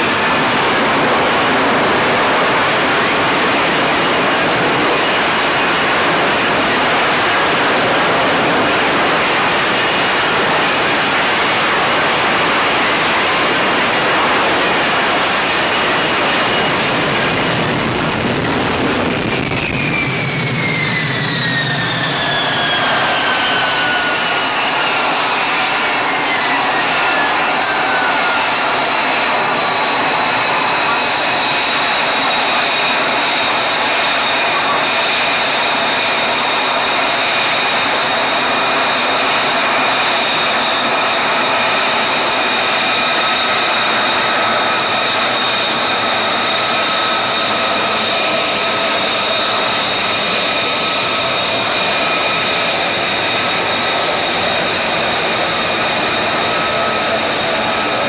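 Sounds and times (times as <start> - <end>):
whining tones falling in pitch: 0.0 - 35.5
jet engine roaring: 0.0 - 58.0.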